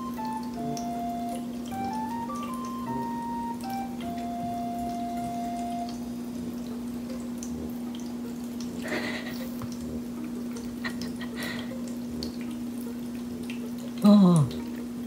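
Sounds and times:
held musical tone: 0:00.0 - 0:08.8
steady electric hum: 0:00.0 - 0:15.0
water fountain stream: 0:00.0 - 0:15.0
cat lapping water: 0:06.4 - 0:15.0.

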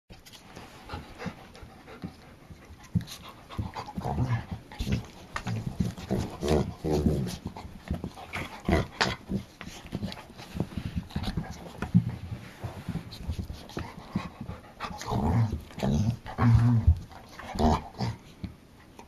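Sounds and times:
dogs panting: 0:00.2 - 0:19.0
scuffling knocks on carpet: 0:02.8 - 0:14.4
dogs growling: 0:03.4 - 0:12.0, 0:13.7 - 0:18.3.

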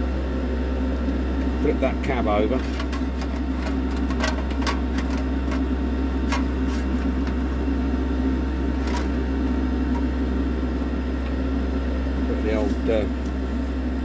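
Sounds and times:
electric fan humming: 0:00.0 - 0:14.0.

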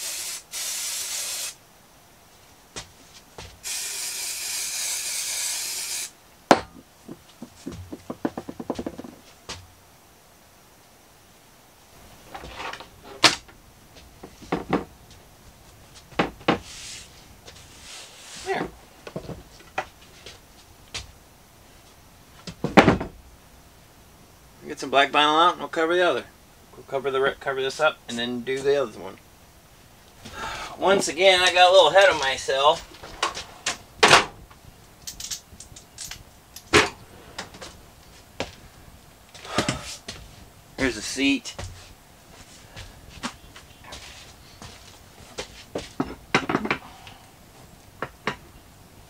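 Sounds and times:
sharp knocks: 0:06.5 - 0:09.2.

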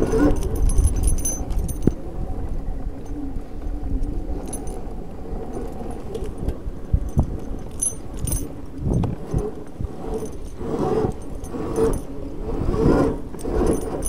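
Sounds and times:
metallic jingling: 0:00.0 - 0:01.9, 0:07.1 - 0:12.1, 0:13.4 - 0:14.0.

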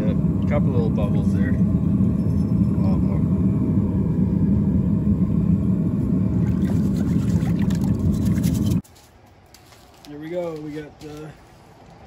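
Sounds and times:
low rumble: 0:00.0 - 0:08.8
water splashing: 0:06.4 - 0:08.8
wire brush scrubbing metal: 0:06.5 - 0:08.8.

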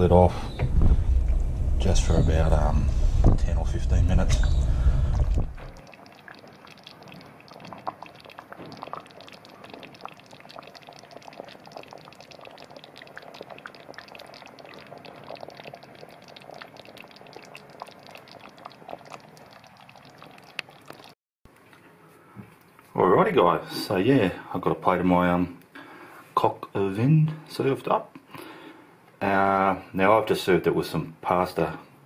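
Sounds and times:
sauce simmering with bubbles popping: 0:04.4 - 0:21.2.

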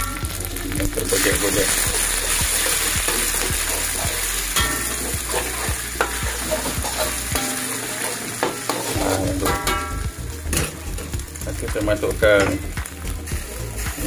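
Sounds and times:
eggs sizzling in oil: 0:00.0 - 0:14.0
spatula scraping and knocking pan: 0:02.6 - 0:11.1.

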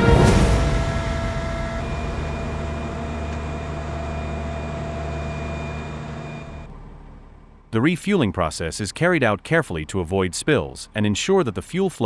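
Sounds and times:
high-pitched whine: 0:00.0 - 0:06.7
low engine drone: 0:00.0 - 0:12.0.

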